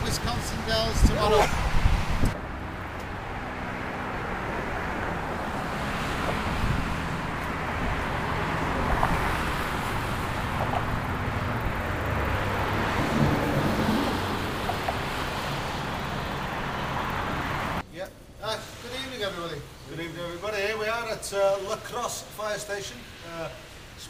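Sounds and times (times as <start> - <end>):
wind buffeting microphone: 0.0 - 2.4, 6.2 - 14.9
road traffic rush: 0.0 - 24.0.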